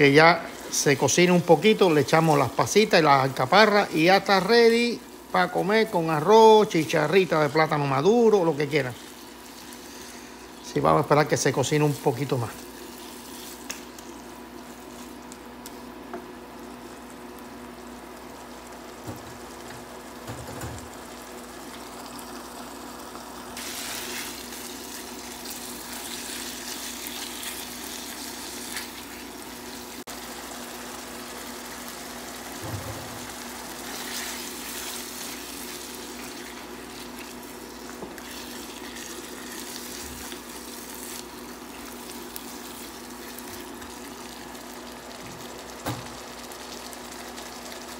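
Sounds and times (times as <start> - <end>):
meat sizzling in a frying pan: 0.0 - 47.9.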